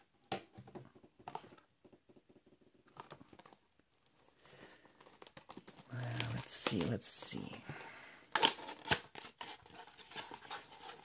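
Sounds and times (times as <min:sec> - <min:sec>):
fingertips crinkling plastic wrap: 0:03.2 - 0:07.5.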